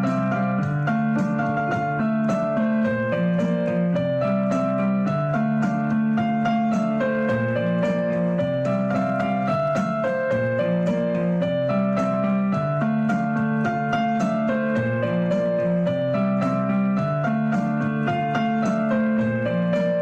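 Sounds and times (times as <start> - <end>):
background piano music: 0.0 - 20.0.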